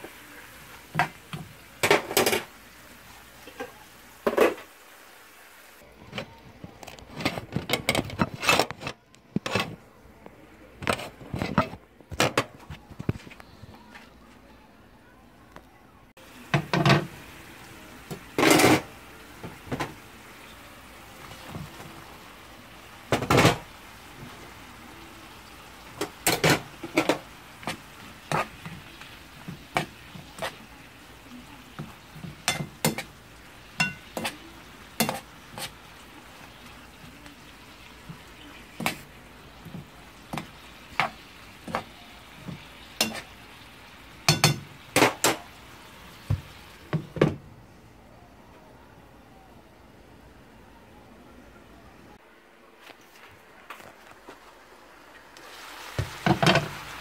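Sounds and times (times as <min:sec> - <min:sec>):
food sizzling in a frying pan: 0:00.0 - 0:05.9, 0:16.2 - 0:47.2, 0:54.4 - 0:57.0
spatula scraping a pan: 0:33.8 - 0:35.8, 0:40.3 - 0:43.4.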